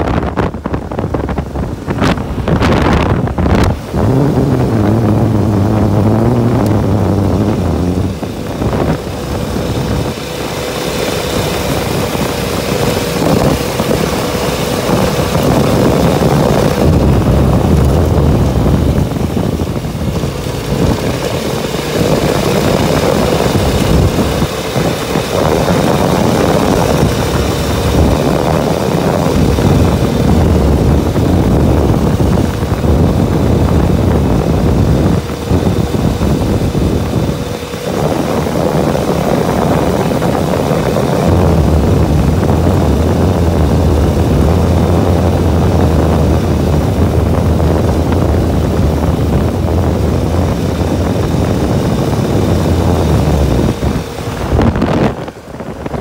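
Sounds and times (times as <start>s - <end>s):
steady whine: 0.0s - 56.0s
vehicle engine cruising: 0.0s - 56.0s
wind noise: 0.0s - 56.0s.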